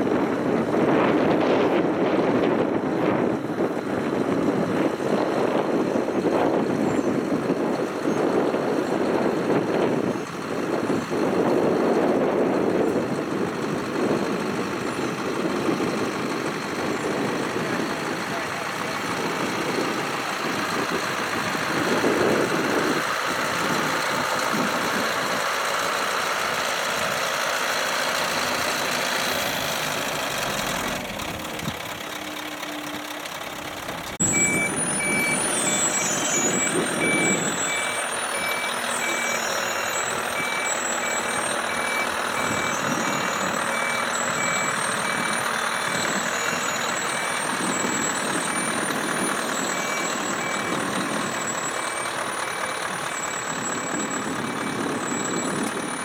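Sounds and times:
diesel truck engine rumbling: 0:00.0 - 0:56.0
reversing alarm beeping: 0:34.2 - 0:56.0.

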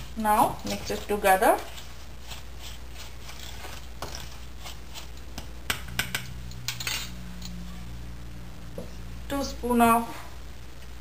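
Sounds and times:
spoon scraping powder in metal bowl: 0:00.0 - 0:07.8.

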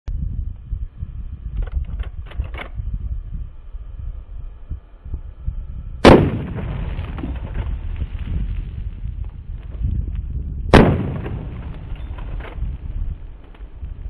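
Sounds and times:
wind rumbling on microphone: 0:00.1 - 0:14.0
rifle shot with rolling echo: 0:06.0 - 0:07.6, 0:10.7 - 0:12.2.

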